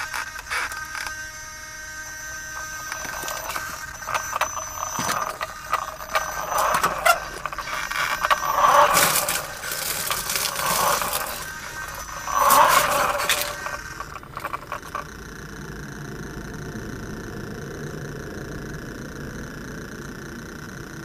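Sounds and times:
tyres crunching on gravel: 0.0 - 15.0
small electric motor whine: 0.0 - 21.0
chassis rattling: 1.9 - 15.6.

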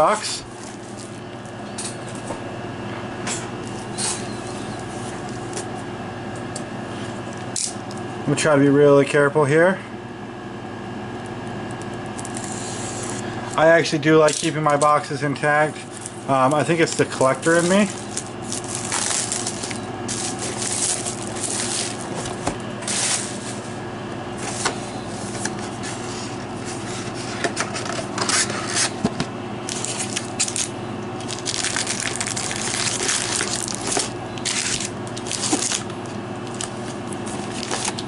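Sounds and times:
foil packs rustling: 15.6 - 23.8, 29.6 - 38.0
plastic shrink wrap crinkling: 15.9 - 23.6, 29.7 - 38.0.

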